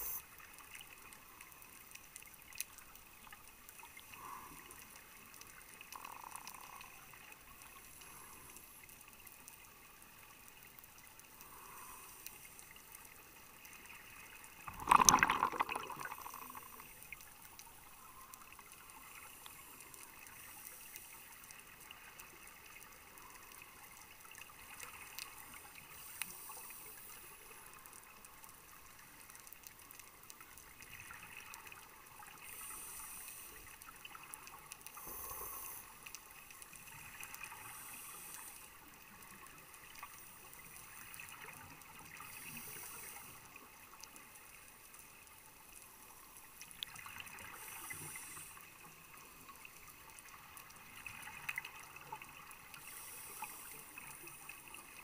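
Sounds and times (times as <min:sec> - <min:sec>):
underwater hiss: 0:00.0 - 0:00.4, 0:11.4 - 0:12.8, 0:13.9 - 0:17.2, 0:18.1 - 0:21.7, 0:24.6 - 0:27.9, 0:32.2 - 0:34.1, 0:34.8 - 0:41.4, 0:42.0 - 0:43.8, 0:47.0 - 0:49.5, 0:52.6 - 0:55.0
faint clicks: 0:00.1 - 0:55.0
regulator exhaling bubbles: 0:14.7 - 0:16.8.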